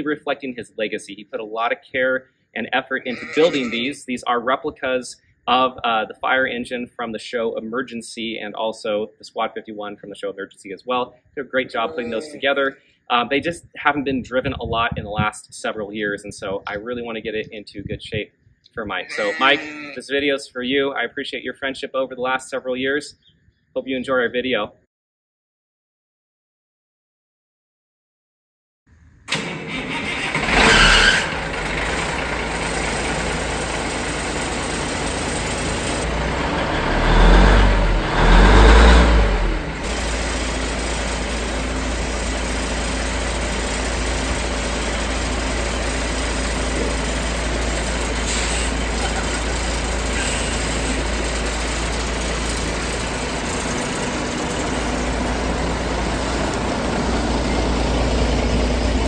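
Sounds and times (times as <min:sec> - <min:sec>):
truck engine starting and revving: 0:29.3 - 0:59.0
engine idling with low rumble: 0:29.4 - 0:59.0.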